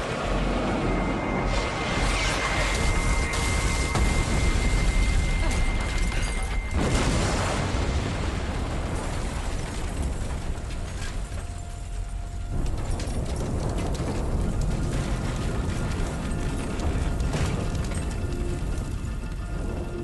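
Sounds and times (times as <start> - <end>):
steady high ringing tone: 0.0 - 8.0, 14.3 - 20.0
heavy low explosion rumble: 0.0 - 10.9, 12.0 - 20.0
sharp explosion blast: 1.5 - 10.3.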